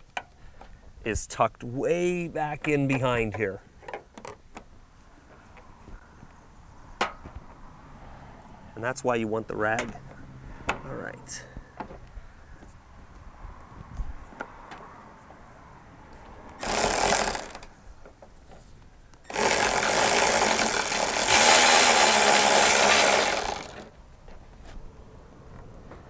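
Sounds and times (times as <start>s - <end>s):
cordless ratchet spinning: 16.6s - 17.7s, 19.3s - 23.9s.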